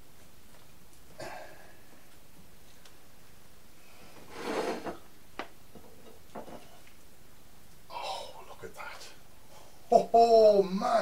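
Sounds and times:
rustling scrape: 4.0s - 5.0s.

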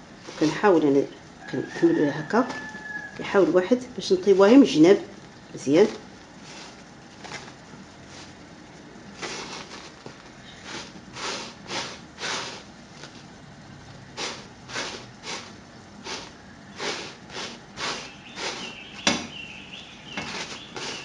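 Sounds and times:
bread rubbing on griddle: 0.0s - 0.9s, 5.8s - 8.5s, 9.1s - 13.3s, 14.1s - 19.0s, 20.1s - 21.0s.

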